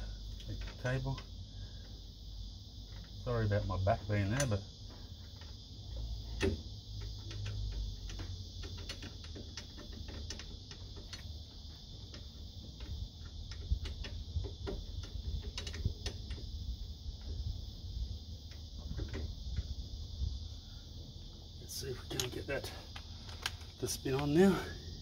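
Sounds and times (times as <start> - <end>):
light clicks and taps: 5.3 - 16.5, 22.1 - 24.4.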